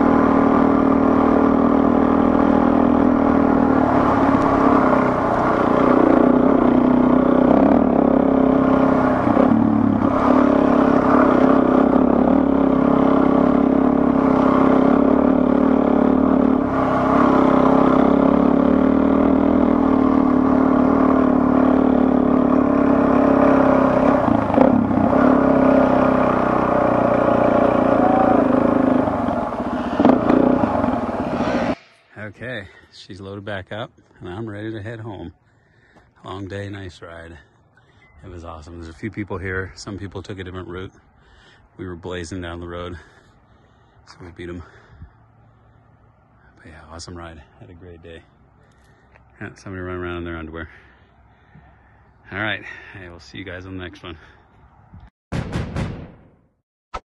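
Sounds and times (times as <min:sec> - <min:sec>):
motorcycle engine running: 0:00.0 - 0:31.8.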